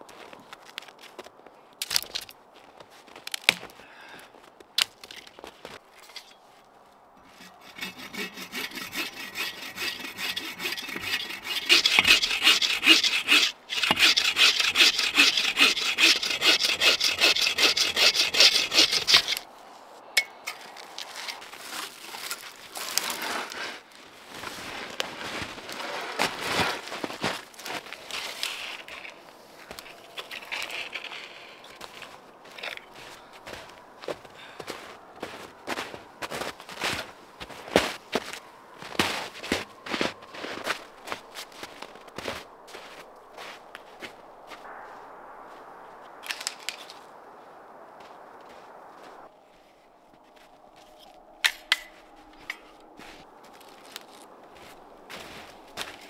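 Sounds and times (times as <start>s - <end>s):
bow saw cutting log: 7.2s - 19.5s.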